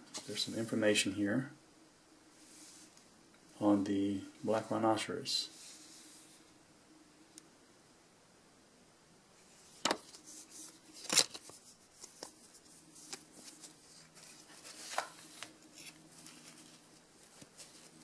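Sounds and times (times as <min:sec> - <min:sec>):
paper rustling: 0:09.6 - 0:18.0.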